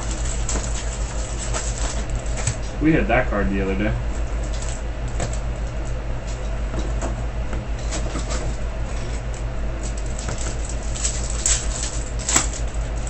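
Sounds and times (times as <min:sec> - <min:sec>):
foil wrappers crinkling: 0:00.0 - 0:02.8, 0:04.1 - 0:06.4, 0:07.7 - 0:13.0.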